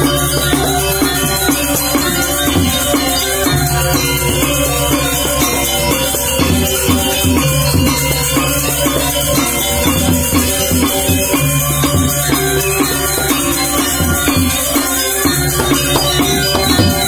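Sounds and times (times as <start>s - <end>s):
bronze metallophones ringing: 0.0s - 17.0s
small cymbals shimmering: 0.0s - 17.0s.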